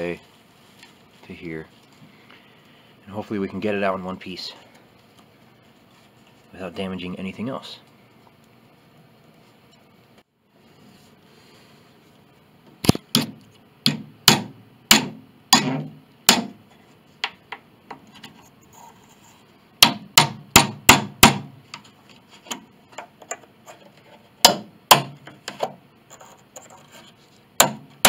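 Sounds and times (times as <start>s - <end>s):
hammer striking chisel on wood: 13.1s - 16.6s, 19.8s - 21.5s, 24.4s - 25.7s, 27.6s - 28.0s.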